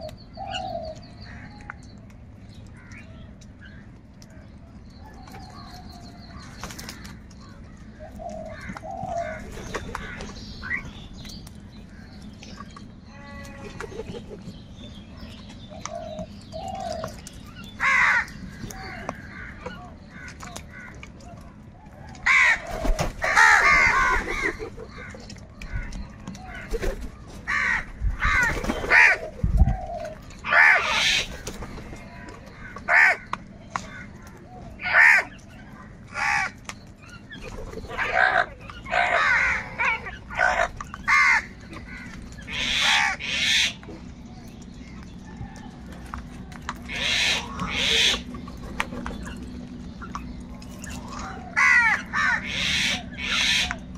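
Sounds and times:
crows cawing: 17.8 - 21.1, 22.2 - 26.8, 27.5 - 29.2, 30.4 - 31.4, 32.5 - 35.4, 36.1 - 36.6, 37.8 - 43.8, 46.8 - 48.3, 51.0 - 53.8.

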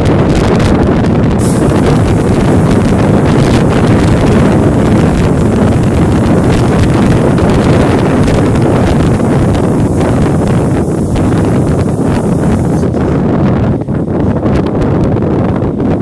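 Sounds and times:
train running rumble: 0.0 - 16.0
wind noise on microphone: 0.0 - 16.0.

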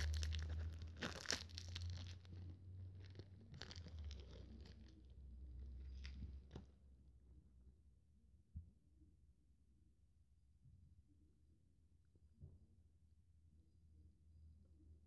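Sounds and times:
wrapper crinkling and tearing: 0.0 - 5.0.

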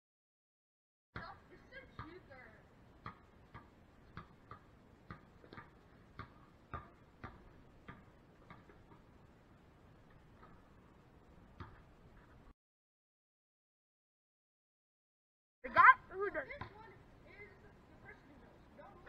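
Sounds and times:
basketball bouncing on concrete: 1.2 - 2.2, 3.0 - 9.1, 11.6 - 11.9, 16.5 - 16.9.

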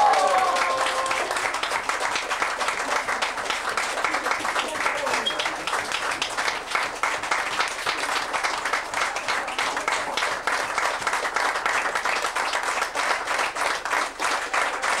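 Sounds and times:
people applauding: 0.0 - 15.0.

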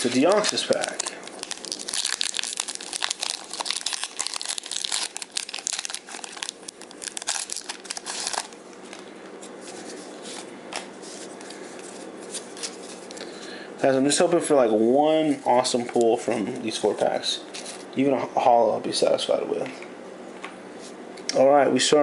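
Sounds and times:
foil wrapper tearing and crinkling: 0.0 - 9.0.

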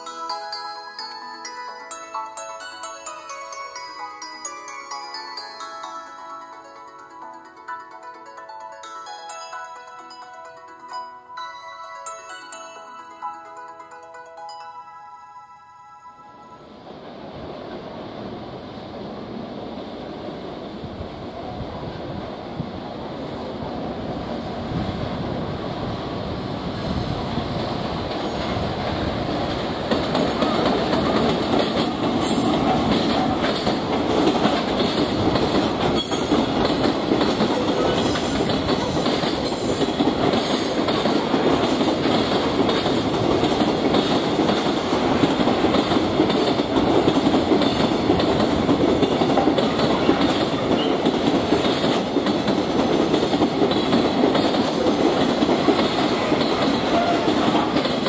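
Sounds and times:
train wheels rumbling on rail: 17.0 - 58.0
wheels clicking over rail joints: 28.0 - 58.0.

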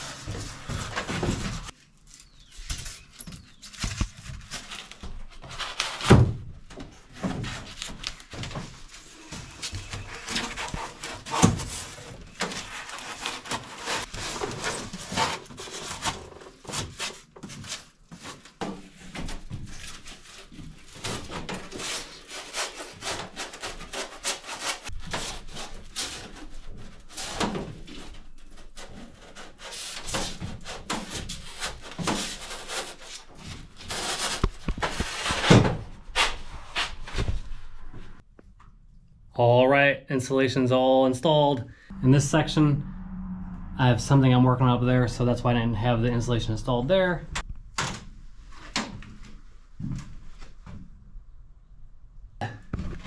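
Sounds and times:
foam boards rubbing and scraping: 0.0 - 37.7.

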